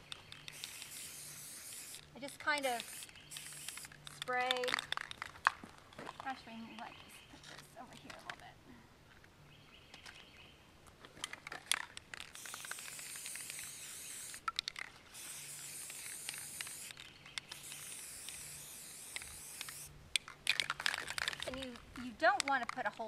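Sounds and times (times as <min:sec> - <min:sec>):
spray paint can hissing: 0:00.3 - 0:04.9, 0:12.3 - 0:19.9.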